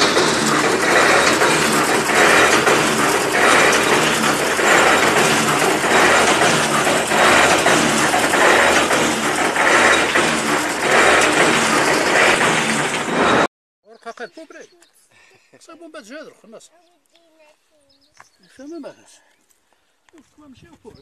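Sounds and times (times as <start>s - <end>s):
drilling rig clattering: 0.0s - 13.5s.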